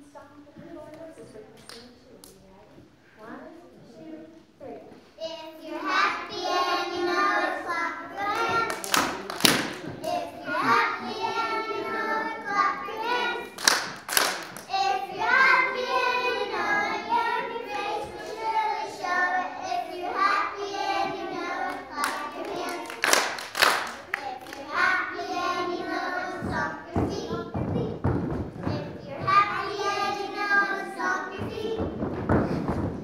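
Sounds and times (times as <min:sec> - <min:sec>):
children singing: 0:05.2 - 0:13.9, 0:14.6 - 0:32.1
hand claps: 0:08.2 - 0:10.2, 0:13.5 - 0:14.7, 0:21.7 - 0:24.6.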